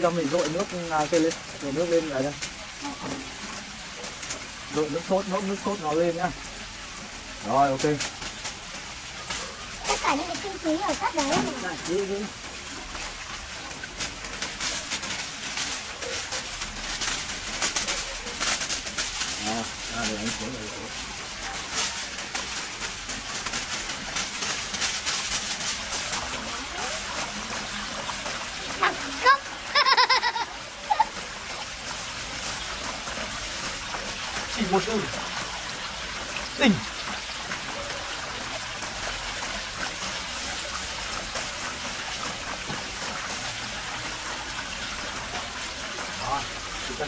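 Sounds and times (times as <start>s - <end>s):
aluminium foil crinkling: 0.0s - 5.9s, 7.5s - 43.6s
trickling water hiss: 0.0s - 47.0s.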